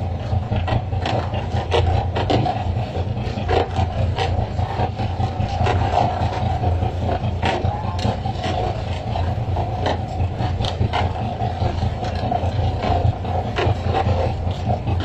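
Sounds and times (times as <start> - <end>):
boat engine running: 0.0 - 15.0.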